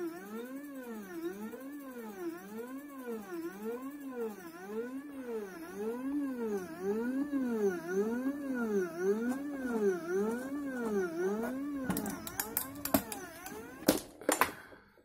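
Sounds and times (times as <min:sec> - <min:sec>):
stepper motors whining: 0:00.0 - 0:14.0
sharp clicks: 0:11.9 - 0:13.9.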